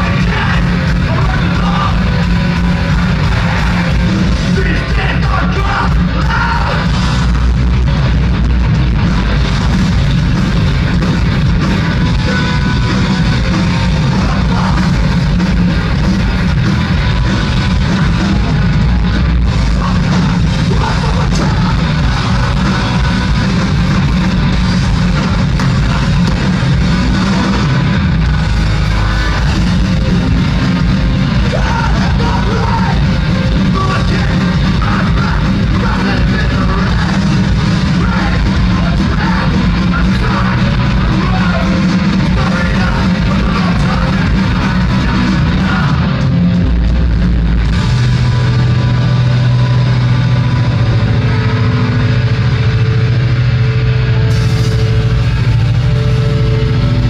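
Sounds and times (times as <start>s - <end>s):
distorted electric guitars: 0.0s - 57.0s
drums: 0.0s - 57.0s
punk band playing live: 0.0s - 57.0s.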